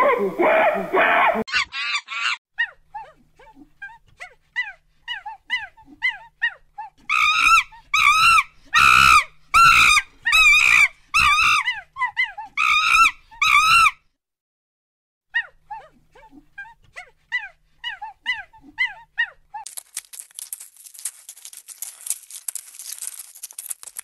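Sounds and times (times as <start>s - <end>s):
monkey squealing: 1.5s - 3.1s, 7.1s - 14.0s.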